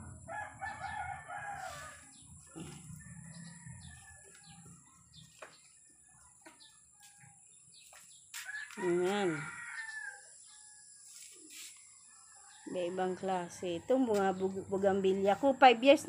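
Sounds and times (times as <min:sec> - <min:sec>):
distant chickens calling: 0:00.0 - 0:05.7.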